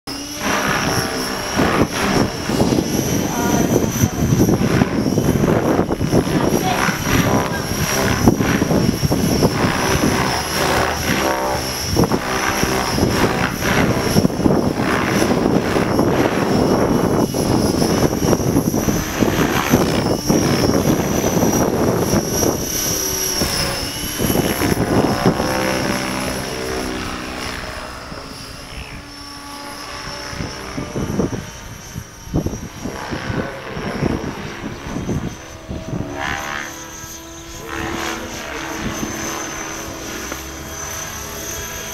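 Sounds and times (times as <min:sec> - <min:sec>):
model helicopter whine: 0:00.0 - 0:41.9
rough rushing noise: 0:00.1 - 0:28.9.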